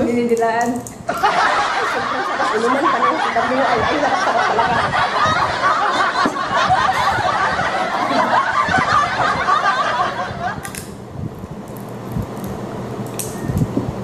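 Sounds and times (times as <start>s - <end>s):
woman laughing: 1.1s - 10.7s.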